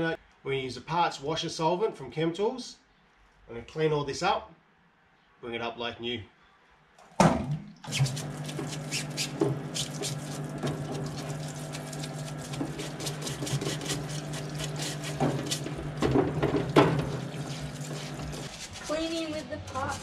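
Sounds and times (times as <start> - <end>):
splashing and clicking: 7.4 - 19.0
solvent streaming from nozzle: 7.9 - 18.8
electric pump humming: 7.9 - 20.0.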